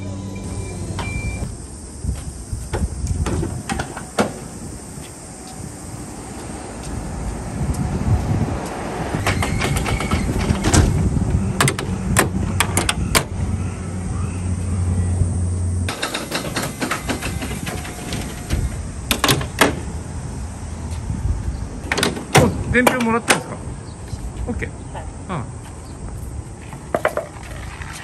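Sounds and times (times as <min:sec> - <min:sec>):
hydraulic hum: 0:00.0 - 0:23.1
metal latches clanking: 0:15.9 - 0:19.9.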